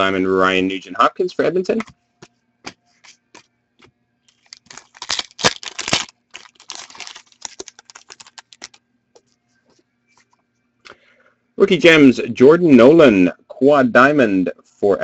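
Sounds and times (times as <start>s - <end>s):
wrapper crinkling and tearing: 4.3s - 8.8s.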